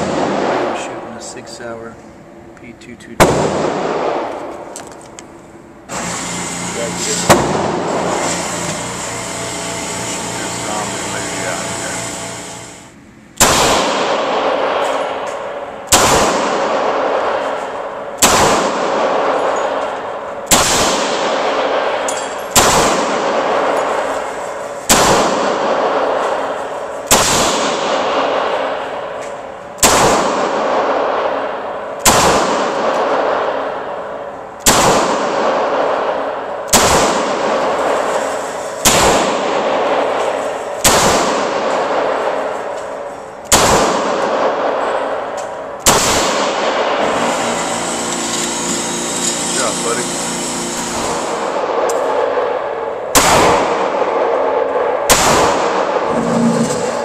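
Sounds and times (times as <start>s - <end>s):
pistol shots echoing: 3.2s - 4.5s, 13.4s - 29.2s, 29.8s - 47.3s, 51.0s - 56.1s.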